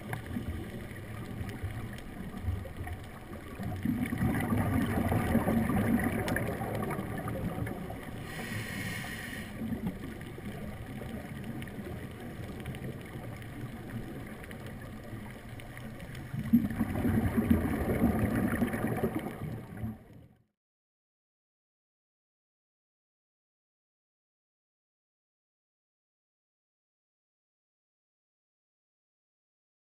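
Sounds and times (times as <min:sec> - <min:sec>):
muffled underwater rumble: 0:00.0 - 0:20.4
brief hiss: 0:08.3 - 0:09.6.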